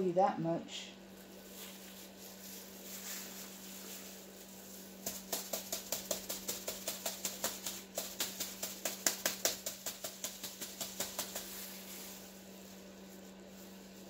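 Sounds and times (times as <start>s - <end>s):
steady low hum: 0.0s - 14.0s
rapid even tapping: 5.0s - 11.6s.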